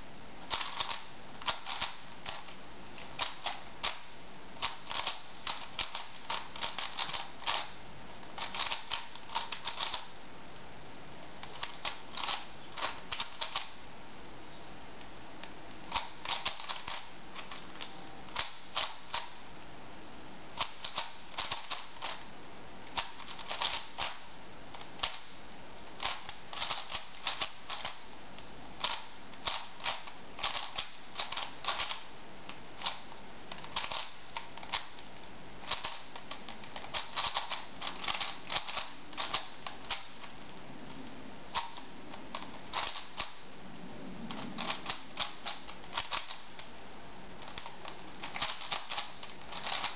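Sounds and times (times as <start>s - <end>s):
puzzle cube layers clacking: 0.4s - 10.1s, 11.4s - 13.8s, 15.8s - 19.4s, 20.6s - 22.3s, 22.9s - 25.4s, 26.0s - 28.0s, 28.8s - 32.1s, 32.7s - 40.4s, 41.5s - 43.5s, 44.3s - 46.7s, 47.4s - 49.9s.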